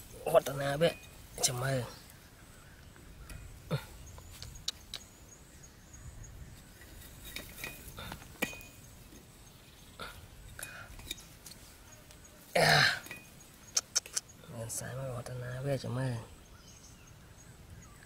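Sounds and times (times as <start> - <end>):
person coughing: 12.6 - 13.0.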